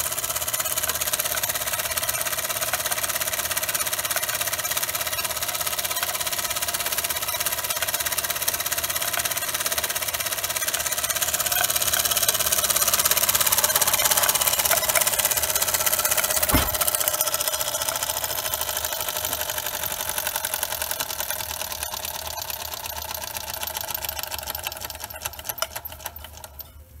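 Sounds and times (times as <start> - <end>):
toy steam engine chuffing: 0.0 - 27.0
sharp knock: 16.5 - 16.9.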